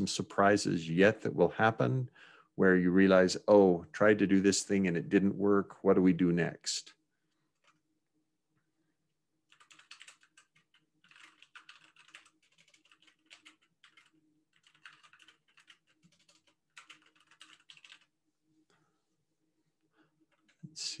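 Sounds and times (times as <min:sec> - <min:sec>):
keyboard typing: 0:07.5 - 0:07.8, 0:09.5 - 0:18.1, 0:20.2 - 0:20.8.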